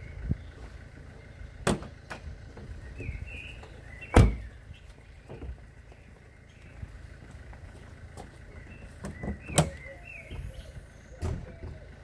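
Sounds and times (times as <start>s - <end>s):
low outdoor rumble: 0.0s - 12.0s.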